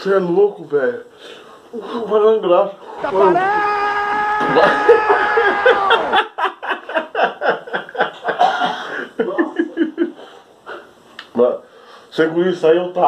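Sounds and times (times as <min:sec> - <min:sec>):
man laughing hard: 0:04.3 - 0:10.2.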